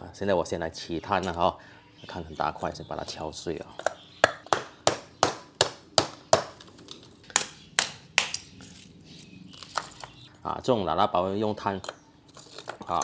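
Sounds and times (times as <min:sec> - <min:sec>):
hammer cracking charcoal: 0:03.8 - 0:10.3, 0:11.8 - 0:13.0.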